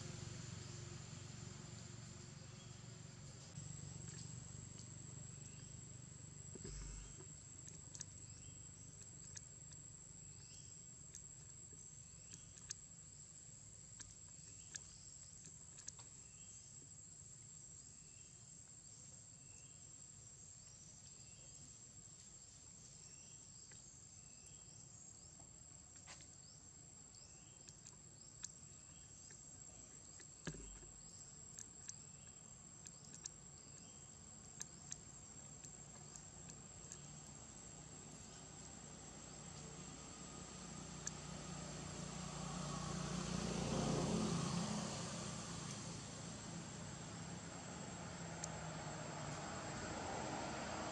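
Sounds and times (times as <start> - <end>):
small insect chirp: 0.0 - 50.9
soft ticks: 3.4 - 5.7, 6.5 - 13.2, 13.8 - 16.9, 27.1 - 38.7, 41.0 - 41.2, 48.4 - 48.6.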